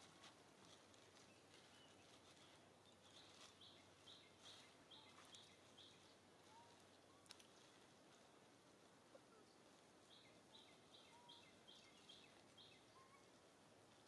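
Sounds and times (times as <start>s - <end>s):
outdoor background hiss: 0.0s - 14.0s
bird chirping: 1.2s - 7.4s, 9.3s - 13.4s
faint clicks: 7.2s - 7.6s.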